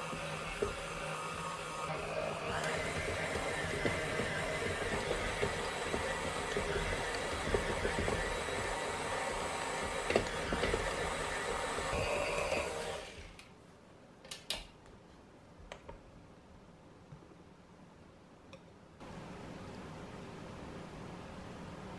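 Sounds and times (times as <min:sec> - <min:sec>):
stand mixer motor whirring: 0:00.0 - 0:13.4.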